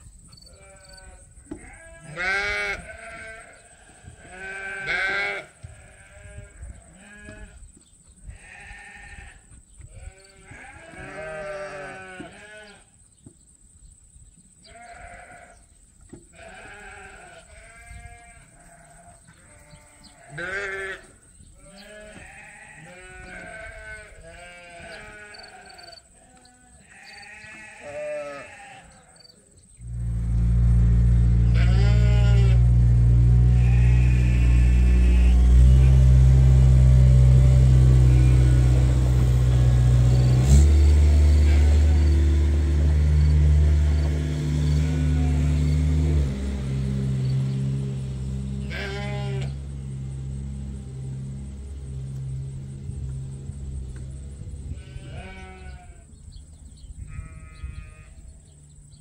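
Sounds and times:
sheep bleating: 0:00.5 - 0:07.6, 0:08.3 - 0:12.9, 0:14.6 - 0:15.6, 0:16.3 - 0:29.2, 0:31.1 - 0:46.1, 0:48.3 - 0:52.4, 0:54.4 - 0:56.2, 0:57.1 - 0:58.3
low engine rumble: 0:29.8 - 0:59.0.

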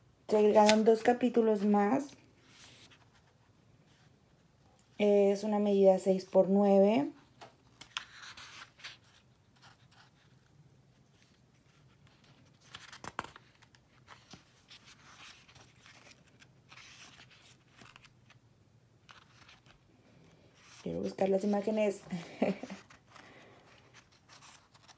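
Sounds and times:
book pages turning: 0:00.5 - 0:01.7, 0:02.4 - 0:04.1, 0:07.6 - 0:18.4, 0:19.0 - 0:24.9.

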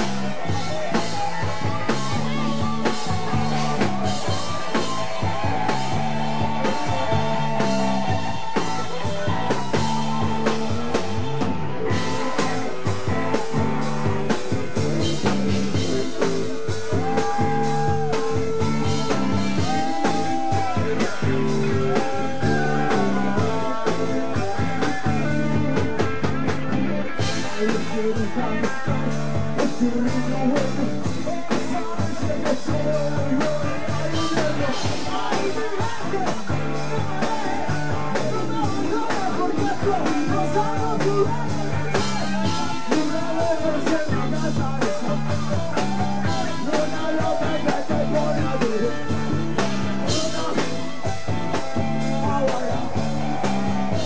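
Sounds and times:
bass guitar: 0:00.0 - 0:54.0
drum kit: 0:00.0 - 0:54.0
electric guitars: 0:00.0 - 0:54.0
keyboard: 0:00.0 - 0:54.0
man singing: 0:14.6 - 0:26.0, 0:27.2 - 0:54.0.

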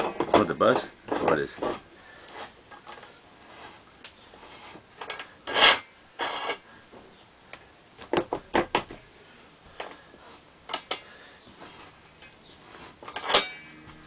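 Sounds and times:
metal pole rasping scrape: 0:01.3 - 0:06.7, 0:11.6 - 0:14.0.

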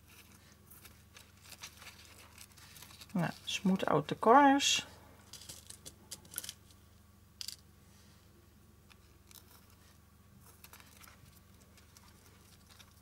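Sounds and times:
fingertips rustling on ribbon: 0:00.0 - 0:03.6.

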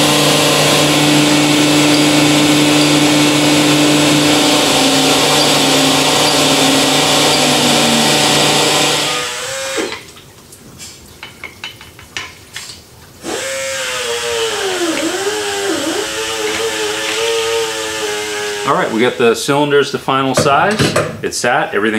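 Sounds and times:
honing machine noise with low hum: 0:00.0 - 0:09.2
wavering tone dipping in pitch: 0:01.5 - 0:09.1.

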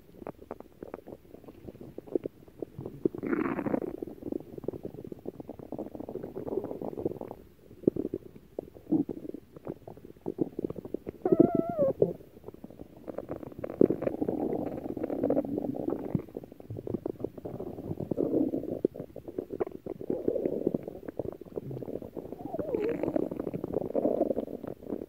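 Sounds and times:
stomach growling: 0:00.0 - 0:25.0
squeaky wavering gurgle: 0:11.2 - 0:12.2, 0:21.8 - 0:24.0.

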